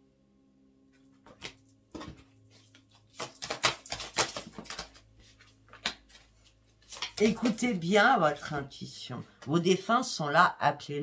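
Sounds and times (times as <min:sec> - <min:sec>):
cards clicking and flicking: 0:02.5 - 0:05.0.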